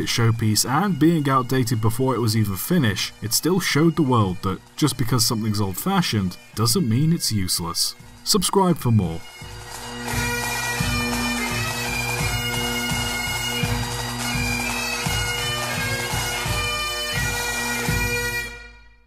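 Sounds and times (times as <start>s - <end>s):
bagpipe tune with drone: 0.0s - 19.0s.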